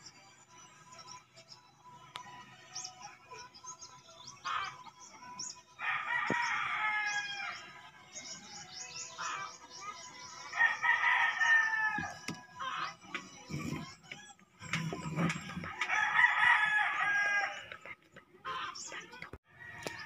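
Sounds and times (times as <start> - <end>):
small birds chirping: 0.0 - 20.0
rooster crowing: 5.8 - 7.7, 10.6 - 12.2, 15.7 - 17.7.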